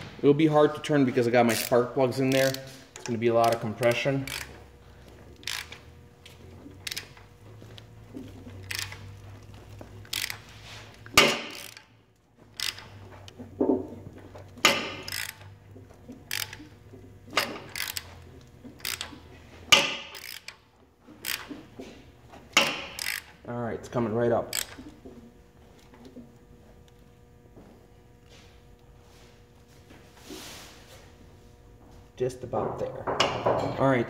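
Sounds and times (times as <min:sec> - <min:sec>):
ratchet wrench clicking: 0:01.5 - 0:04.7, 0:05.4 - 0:05.9, 0:06.8 - 0:07.2, 0:08.6 - 0:13.4, 0:14.6 - 0:15.6, 0:16.2 - 0:20.6, 0:21.2 - 0:21.6, 0:22.5 - 0:23.4, 0:24.5 - 0:25.0.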